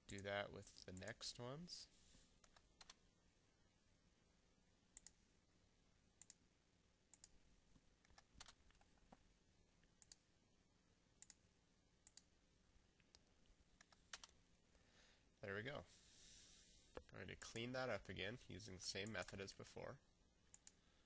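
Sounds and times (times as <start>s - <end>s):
computer mouse clicks: 2.4s - 3.0s, 5.0s - 5.2s, 6.2s - 6.4s, 7.1s - 7.4s, 8.0s - 8.9s, 10.0s - 10.2s, 11.2s - 11.4s, 12.0s - 12.3s, 13.0s - 14.4s, 20.5s - 20.8s.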